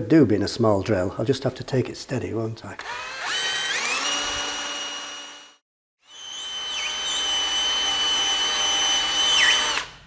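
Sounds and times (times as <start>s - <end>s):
power drill whining: 2.8s - 10.0s.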